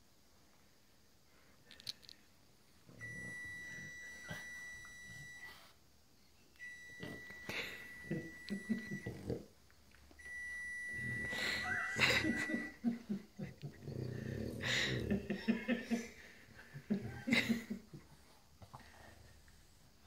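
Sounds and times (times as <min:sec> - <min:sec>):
dog grunting: 0:13.6 - 0:15.4.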